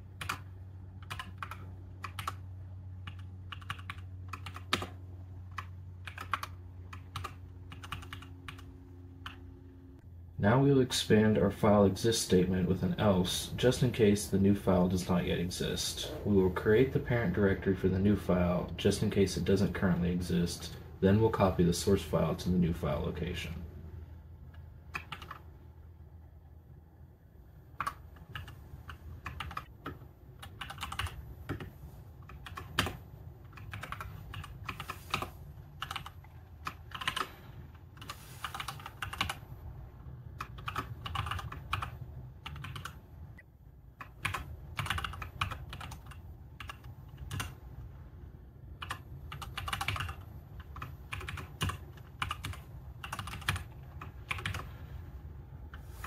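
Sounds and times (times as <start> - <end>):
keyboard typing: 0.1 - 9.5, 24.5 - 25.5, 27.8 - 39.4, 40.4 - 43.0, 44.0 - 47.6, 48.8 - 54.8.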